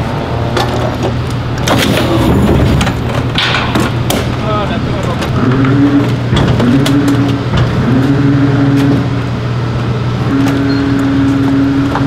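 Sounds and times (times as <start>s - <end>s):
sharp clicks and knocks: 0.5s - 4.4s, 5.0s - 7.8s.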